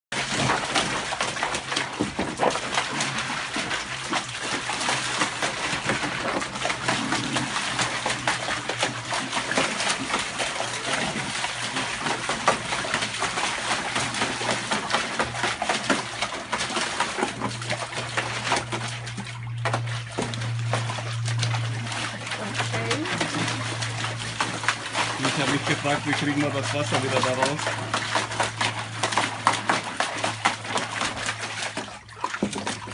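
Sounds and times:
dog splashing in paddling pool: 0.1 - 32.9
low hum: 2.6 - 32.0.

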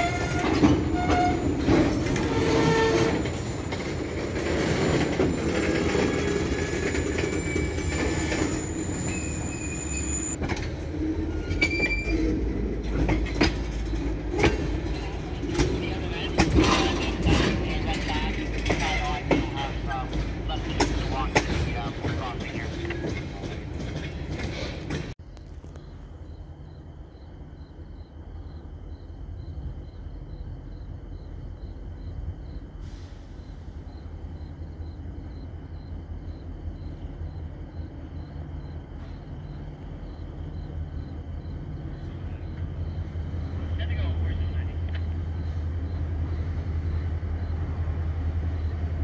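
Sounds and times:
wheel squeals: 0.0 - 10.4, 11.2 - 25.2
freight train rolling rumble: 0.0 - 49.0
wheel clanks over rail joints: 10.3 - 25.2
cricket chirping: 25.2 - 49.0.

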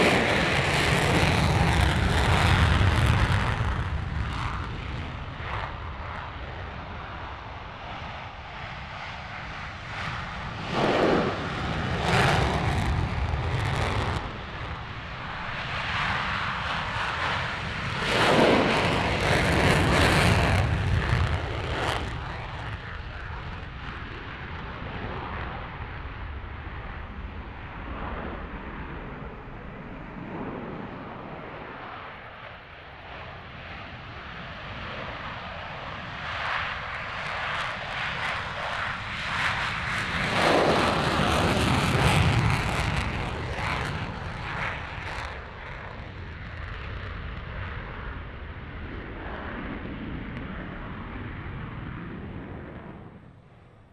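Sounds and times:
jet engines rumbling: 0.0 - 53.9.

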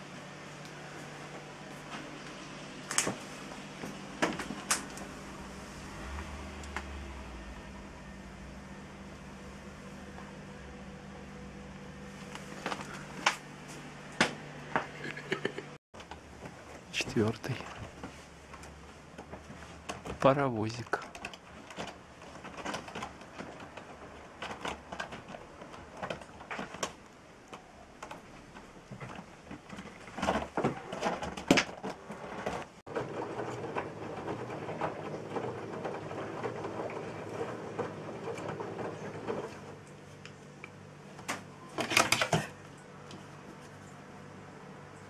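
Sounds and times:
washing machine humming: 0.0 - 45.0
washing machine clatter: 16.0 - 40.2, 41.2 - 42.6.

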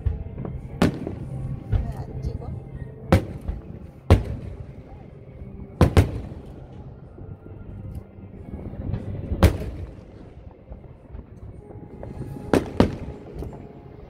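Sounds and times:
firework shells bursting: 9.3 - 13.8.

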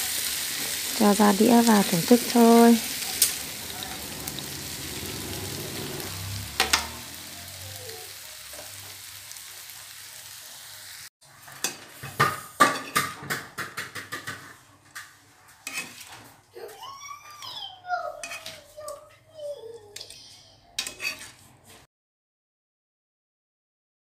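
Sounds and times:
food sizzling in a frying pan: 0.0 - 13.1
utensil scraping pan: 15.5 - 16.4, 18.2 - 18.8, 20.8 - 21.9.

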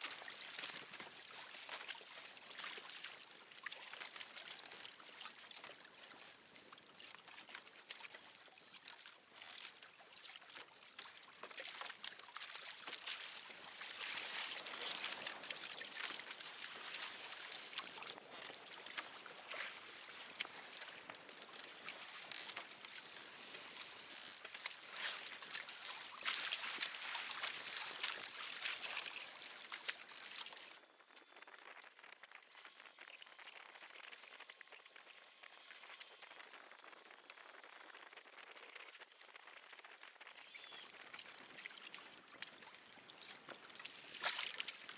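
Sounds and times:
water splashing against a hull: 0.0 - 30.8, 40.4 - 44.9.

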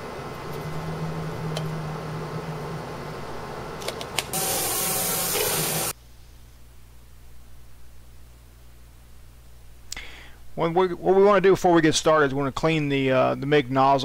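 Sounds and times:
loud steady hiss: 4.3 - 6.0.

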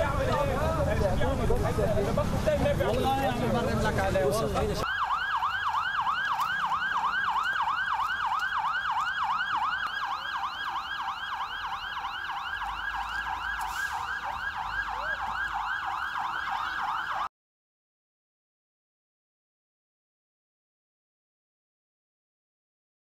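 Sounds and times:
siren yelping: 4.8 - 17.3.

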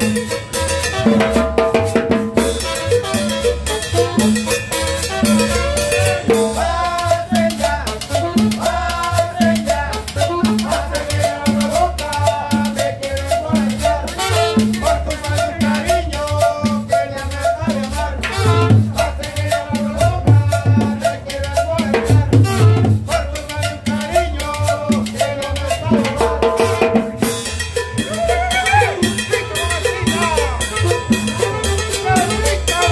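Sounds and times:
salsa dance band playing: 0.0 - 32.9
man singing: 5.4 - 26.8, 28.0 - 32.9.

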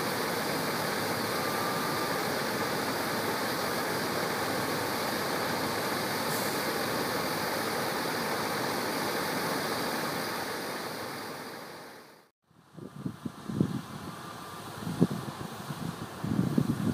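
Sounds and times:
combine harvester running: 0.0 - 11.9.

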